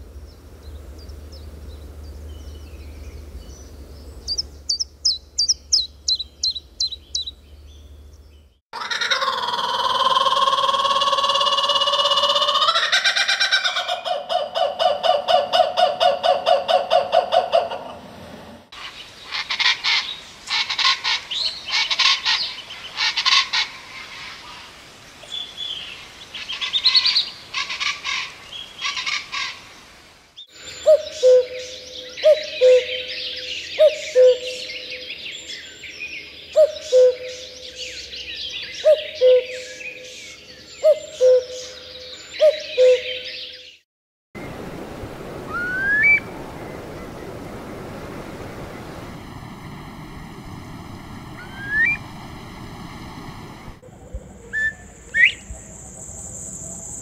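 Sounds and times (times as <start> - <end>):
birdsong: 0.2 - 8.6, 30.4 - 43.8, 51.4 - 52.1, 53.9 - 57.0
cuckoo calling: 4.2 - 7.4, 8.8 - 18.0, 30.7 - 35.2, 36.6 - 43.8, 45.4 - 47.3, 51.4 - 52.1, 53.9 - 56.6
kookaburra laughing call: 8.8 - 18.0
steady hiss: 18.8 - 30.9
curlew rising whistle: 45.4 - 46.7, 51.4 - 52.1, 54.4 - 57.0.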